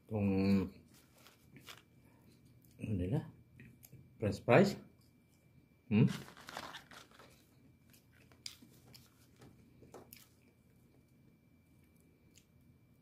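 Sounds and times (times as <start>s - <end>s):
rustling: 0.8s - 2.4s, 6.1s - 10.3s
food packaging crinkling and tearing: 1.0s - 2.0s, 6.1s - 10.4s.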